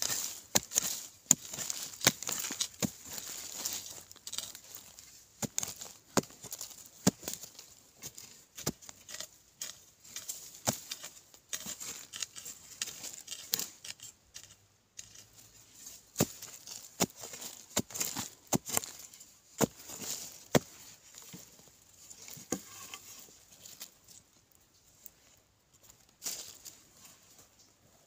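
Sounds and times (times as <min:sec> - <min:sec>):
earth and clods falling: 0:00.0 - 0:13.6, 0:15.9 - 0:24.0.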